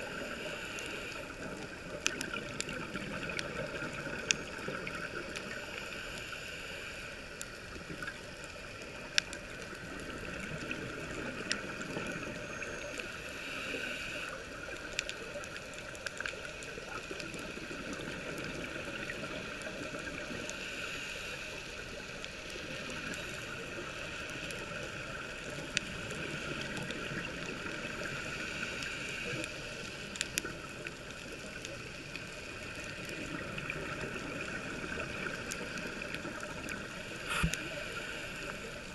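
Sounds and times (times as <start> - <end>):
muffled underwater water rumble: 0.0 - 38.9.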